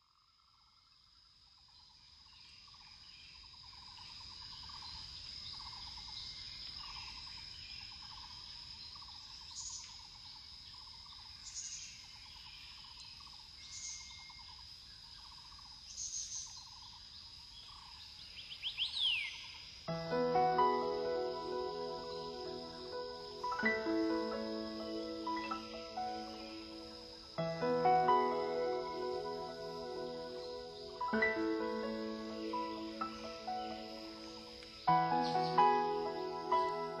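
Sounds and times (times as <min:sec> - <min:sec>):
high-pitched insect drone: 0:19.9 - 0:37.0.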